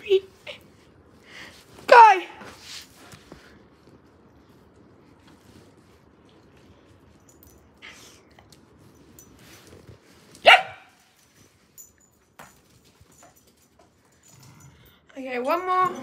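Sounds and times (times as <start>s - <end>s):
dog barking: 10.4s - 11.0s.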